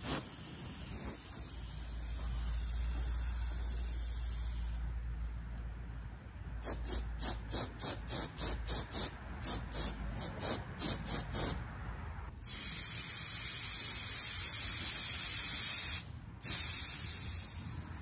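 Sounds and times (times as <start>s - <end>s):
oxygen puffs from cutting torch: 0.0s - 2.1s.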